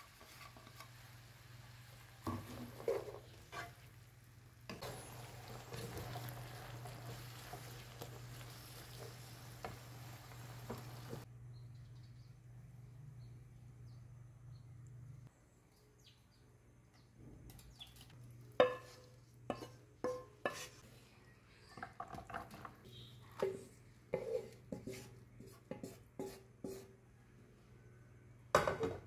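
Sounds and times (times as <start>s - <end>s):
spatula scraping and knocking wok: 0.0s - 11.3s, 18.5s - 20.8s, 21.9s - 27.0s.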